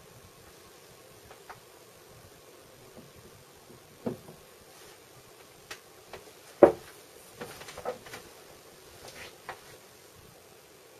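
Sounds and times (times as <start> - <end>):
whiteboards tapping and knocking: 2.9 - 4.5, 5.7 - 8.3.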